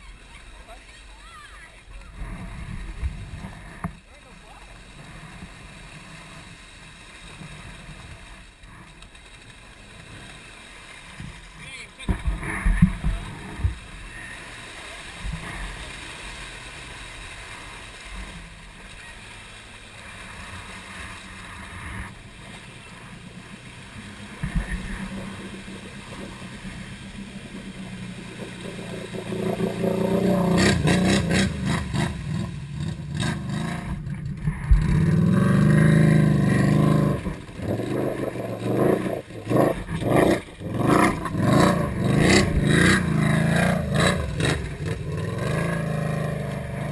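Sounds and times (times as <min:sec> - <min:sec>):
atv engine idling and revving: 0:11.6 - 0:46.9.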